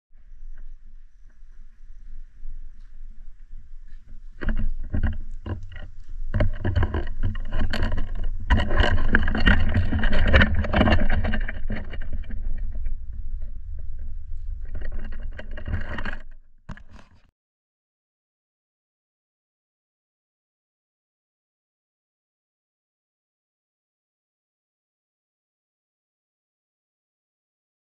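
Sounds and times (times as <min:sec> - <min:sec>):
wind buffeting microphone: 0:00.3 - 0:16.3.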